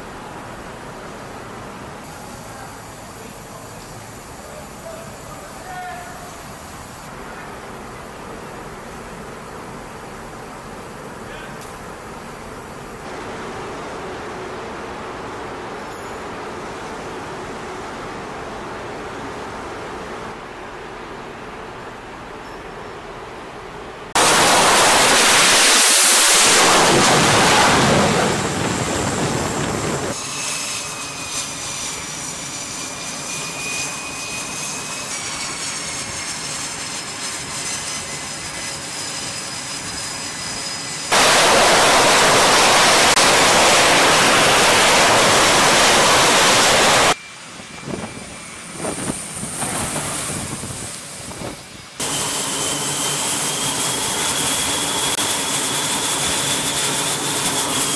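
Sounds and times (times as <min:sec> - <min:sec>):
loud hissing jet noise: 0:00.0 - 0:20.4, 0:24.1 - 0:57.9
jet engines idling whine: 0:00.0 - 0:57.9.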